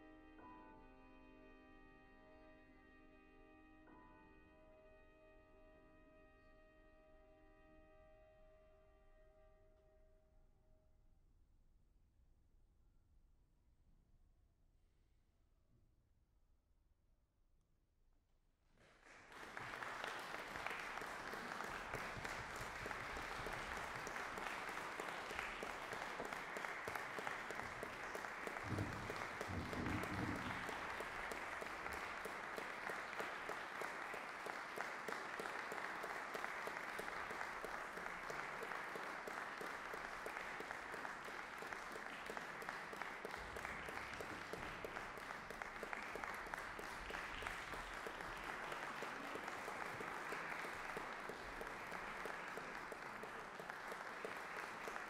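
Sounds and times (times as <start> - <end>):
audience applauding: 18.8 - 55.0.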